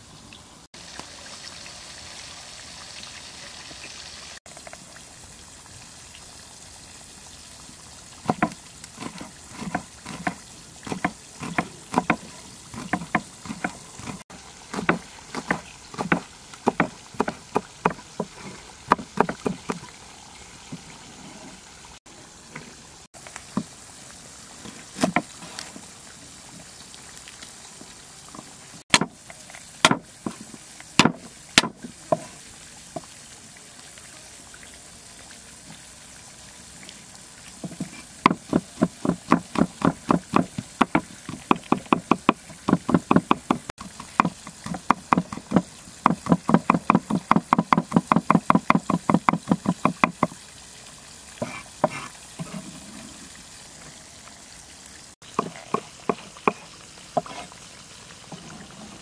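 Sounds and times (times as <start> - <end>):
cleaver chopping on wooden board: 8.3 - 12.2, 12.8 - 18.3, 18.9 - 19.8, 28.9 - 29.2, 29.8 - 30.0, 31.0 - 31.8, 37.7 - 50.3.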